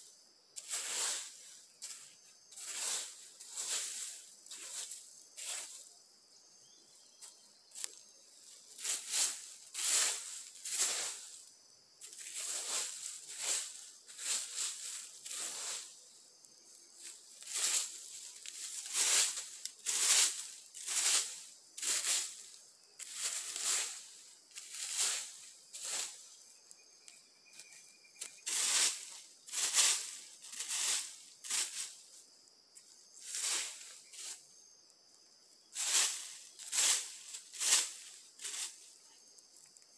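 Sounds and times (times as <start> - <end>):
dry leaves swishing and crackling: 0.6 - 5.8, 8.8 - 16.0, 17.0 - 26.4, 28.2 - 32.1, 33.2 - 34.4, 35.7 - 38.9.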